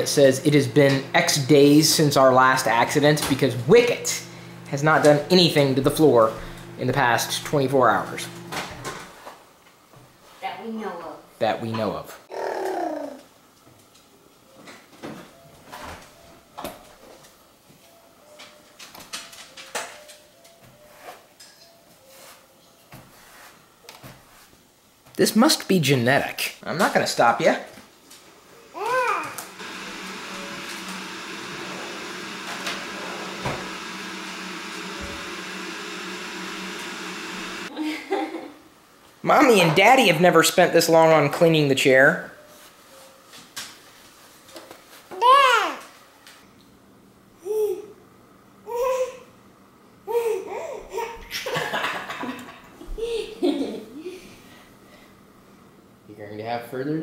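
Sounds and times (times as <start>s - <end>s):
appliance motor humming: 0.0s - 9.1s, 28.7s - 37.7s.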